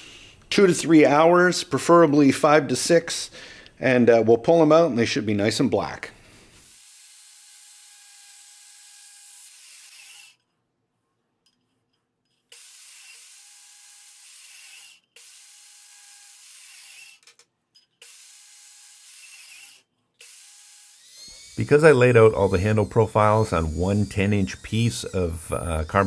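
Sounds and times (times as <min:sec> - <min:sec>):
bandsaw cutting a sheet: 0:06.6 - 0:10.4, 0:12.5 - 0:17.4, 0:18.0 - 0:26.0.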